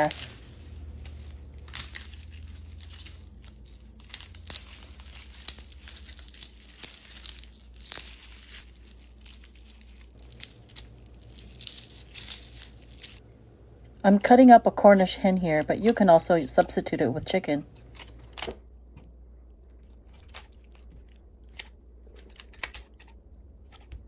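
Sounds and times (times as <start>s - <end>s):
lemongrass crackling and rustling: 0.0s - 13.2s
low hum: 0.0s - 15.2s.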